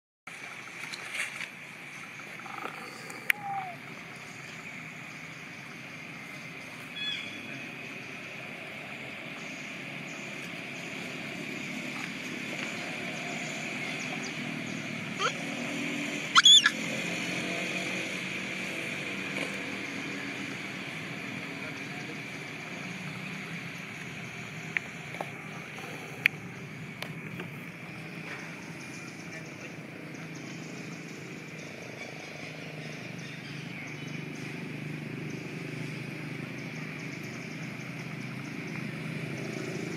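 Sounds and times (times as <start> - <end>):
distant traffic hum: 0.3 - 39.9
loud squeal: 16.3 - 16.8
short chirps: 16.4 - 16.7.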